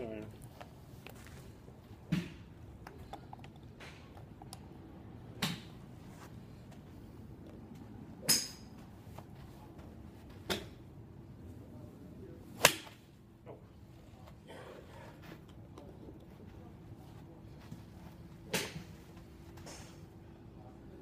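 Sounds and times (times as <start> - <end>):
golf club striking ball: 8.2 - 8.7, 12.6 - 13.0.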